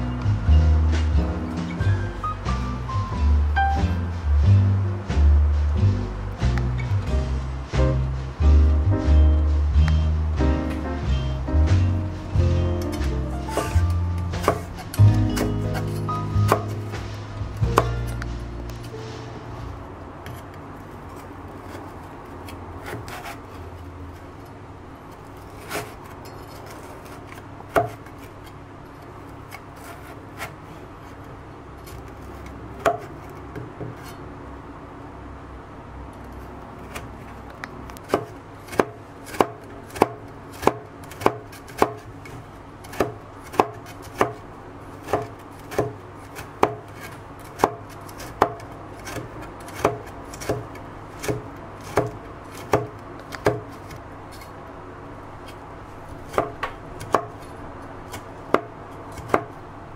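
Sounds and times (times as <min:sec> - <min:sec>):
knife chopping on plastic board: 0:12.4 - 0:18.3, 0:27.7 - 0:28.1, 0:32.8 - 0:34.0, 0:38.0 - 0:44.4, 0:45.0 - 0:54.0, 0:56.3 - 0:57.4, 0:58.1 - 0:59.6.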